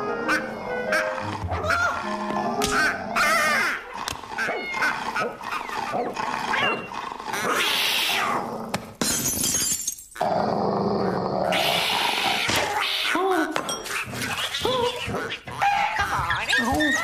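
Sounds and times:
cartoon cat yowling and snarling: 0.3s - 8.5s.

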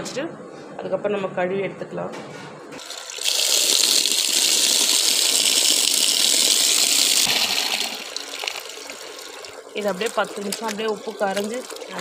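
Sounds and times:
tap water pouring into metal pot: 2.8s - 12.0s.

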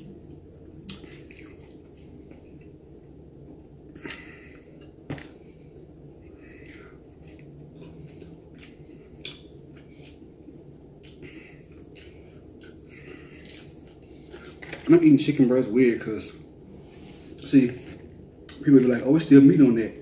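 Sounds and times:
chewing and lip-smacking: 0.8s - 2.7s, 6.5s - 14.7s.

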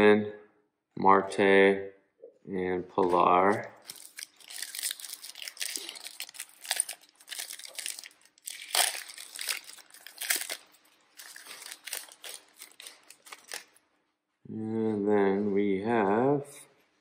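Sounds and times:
foil wrapper tearing and crinkling: 3.8s - 13.8s.

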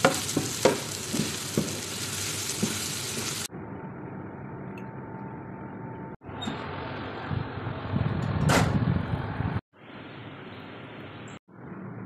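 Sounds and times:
food sizzling in a frying pan: 0.0s - 3.5s.

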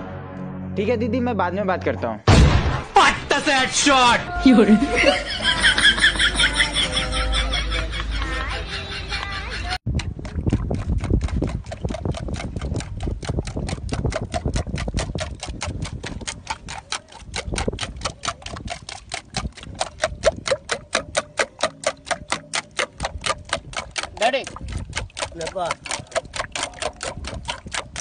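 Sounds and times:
rapid clock-like ticking: 11.0s - 28.0s.

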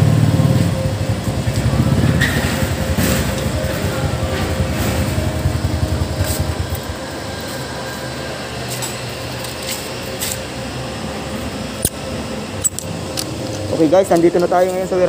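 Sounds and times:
motorcycle engine idling: 0.0s - 9.4s
steady hum: 0.0s - 15.0s.

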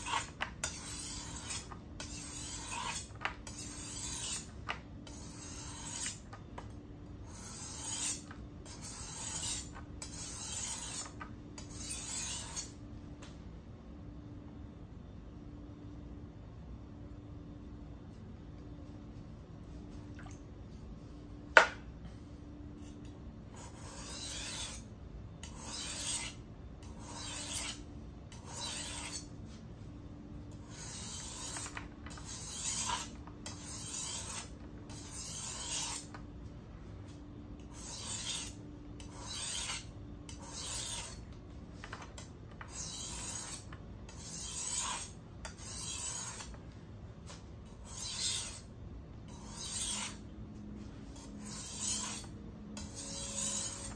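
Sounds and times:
knife blade on whetstone: 0.0s - 6.3s, 7.2s - 12.8s, 23.6s - 29.3s, 30.6s - 36.2s, 37.6s - 41.2s, 42.2s - 46.6s, 47.7s - 48.7s, 49.3s - 50.2s, 51.2s - 53.9s.

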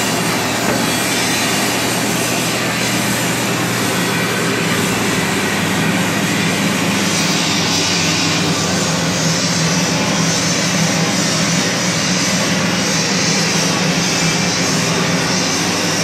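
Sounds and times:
roll-forming machine droning: 0.0s - 16.0s.

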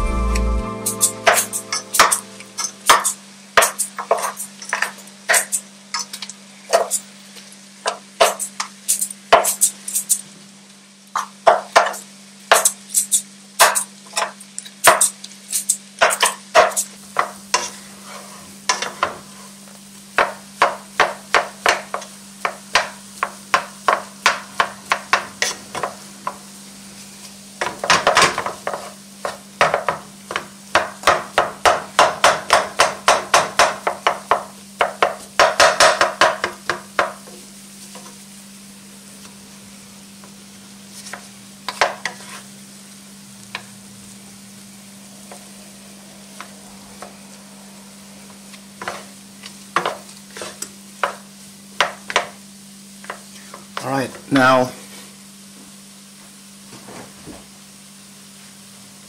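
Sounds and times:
spatula mashing potatoes in pot: 40.9s - 42.5s.

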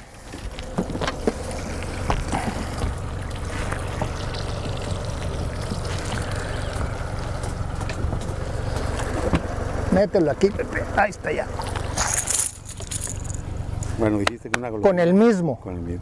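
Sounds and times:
water sloshing around boat: 0.0s - 13.5s
steady low rumble: 0.0s - 15.0s.

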